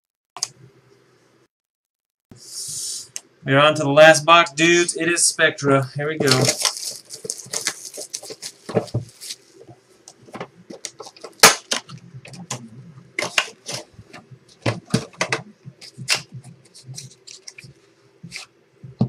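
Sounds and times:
pack wrappers crinkling and tearing: 6.2 - 12.0, 15.8 - 18.5.

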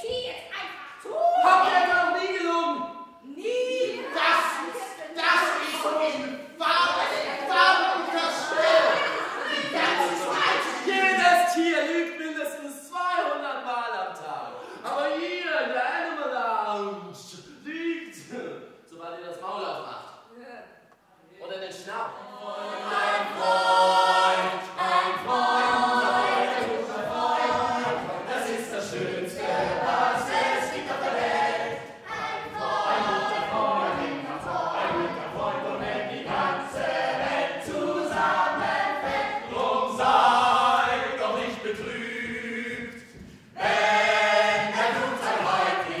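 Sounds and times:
choir singing: 3.6 - 12.0, 22.0 - 46.0.

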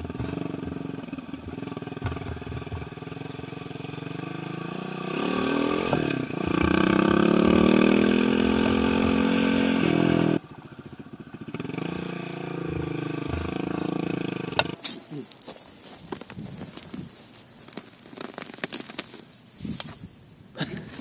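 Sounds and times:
small motorcycle engine revving: 0.0 - 14.8.

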